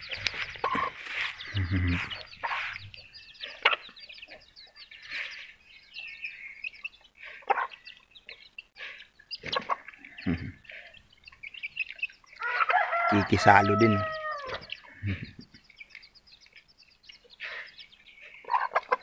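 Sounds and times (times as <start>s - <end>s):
chicks peeping: 0.0s - 19.0s
louder lower bird calls: 12.4s - 15.4s.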